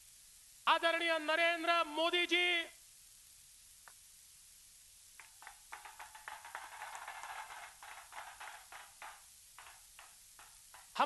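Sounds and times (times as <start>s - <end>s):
crowd clapping: 5.2s - 11.0s.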